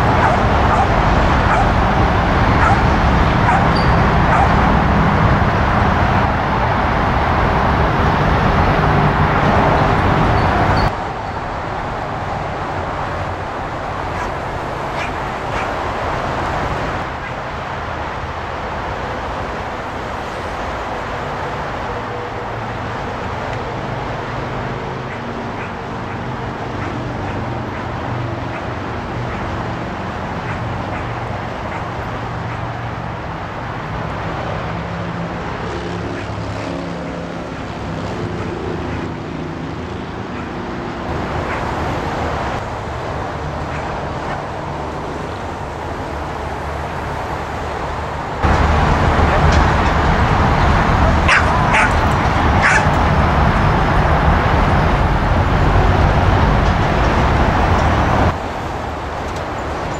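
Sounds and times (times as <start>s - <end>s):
dog barking: 0.0s - 1.9s, 2.5s - 4.8s, 14.1s - 15.8s, 25.0s - 29.6s, 30.4s - 32.7s, 38.3s - 39.1s, 40.3s - 40.6s, 41.4s - 41.7s, 43.7s - 44.5s, 51.1s - 53.0s
traffic hum: 0.0s - 59.9s.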